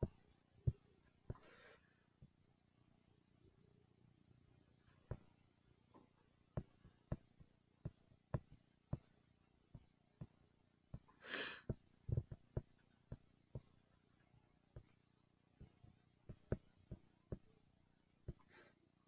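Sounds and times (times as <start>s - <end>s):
breath noise: 1.3s - 2.0s, 11.0s - 12.6s, 18.3s - 18.8s
taps on laptop screen: 6.6s - 9.2s, 11.7s - 13.8s, 15.6s - 17.6s.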